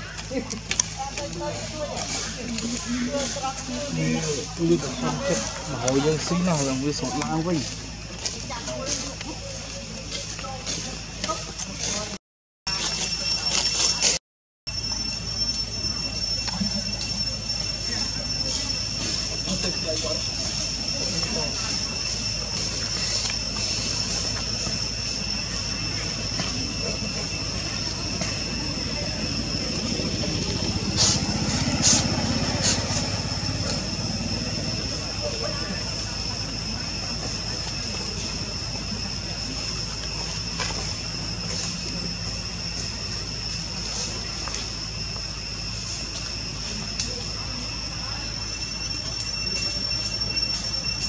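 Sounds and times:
high-pitched insect drone: 0:00.0 - 0:51.0
low engine-like rumble: 0:15.5 - 0:51.0.

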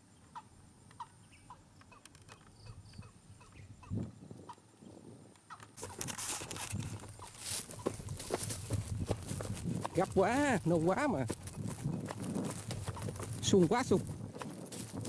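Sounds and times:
faint high bird chirps: 0:00.1 - 0:04.1
rustling through grass: 0:05.8 - 0:15.0.

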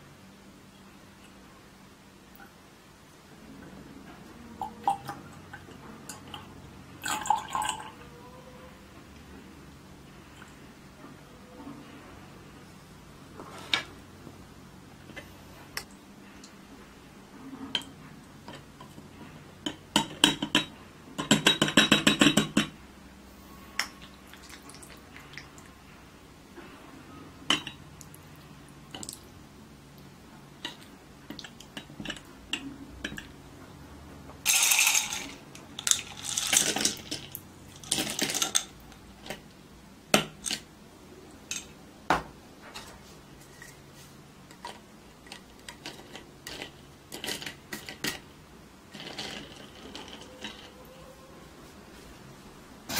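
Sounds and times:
straw stirring drink: 0:04.6 - 0:07.9, 0:34.5 - 0:39.4, 0:44.5 - 0:48.2, 0:48.9 - 0:51.2
ice cubes clattering into carafe: 0:34.5 - 0:38.8, 0:45.2 - 0:48.2, 0:48.9 - 0:50.8.

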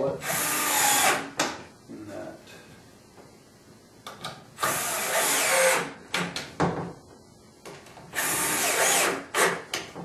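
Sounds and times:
power drill driving a screw: 0:00.2 - 0:01.3, 0:04.6 - 0:05.9, 0:08.2 - 0:09.7.

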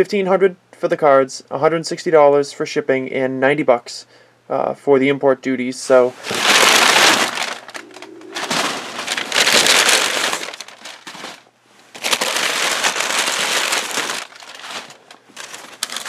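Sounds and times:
packing paper rustling: 0:06.2 - 0:16.0.

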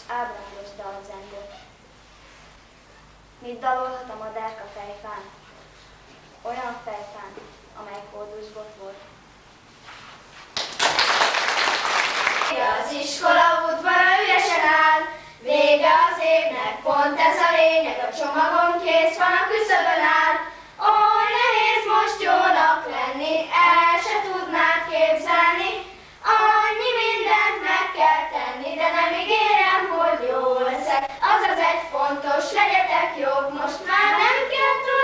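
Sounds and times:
children singing together: 0:12.5 - 0:35.0.

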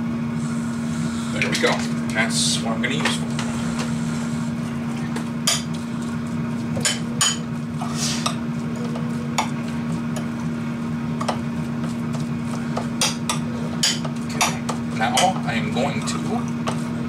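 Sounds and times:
air fryer humming: 0:00.0 - 0:17.0
utensil clinking against bowl: 0:13.0 - 0:16.1.

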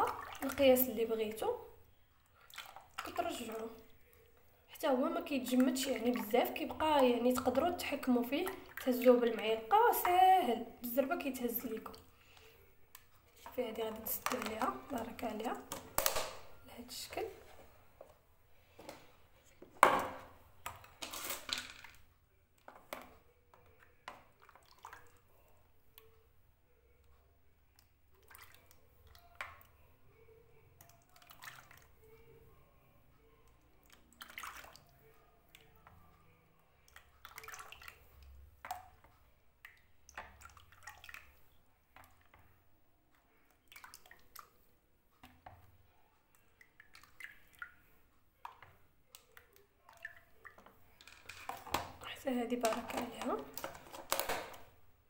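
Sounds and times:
liquid pouring and splashing: 0:00.0 - 0:01.0, 0:02.3 - 0:04.3, 0:24.1 - 0:25.3, 0:30.8 - 0:32.1, 0:33.8 - 0:35.0, 0:36.9 - 0:42.4, 0:43.5 - 0:45.6, 0:46.4 - 0:54.6.

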